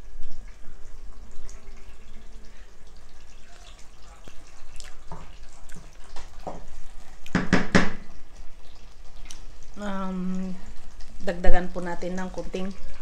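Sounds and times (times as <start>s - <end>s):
stew bubbling and popping: 0.0s - 13.0s
knocks: 7.3s - 8.0s.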